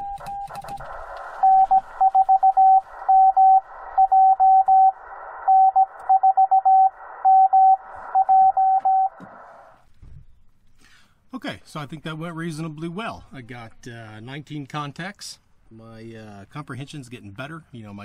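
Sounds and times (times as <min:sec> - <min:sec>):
morse code tones: 0:00.0 - 0:09.6
receiver hiss: 0:00.0 - 0:09.9.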